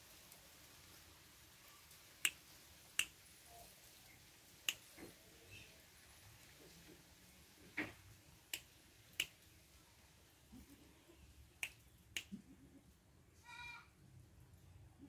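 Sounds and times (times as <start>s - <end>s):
fingers snapping: 8.5s - 9.3s, 11.6s - 12.4s.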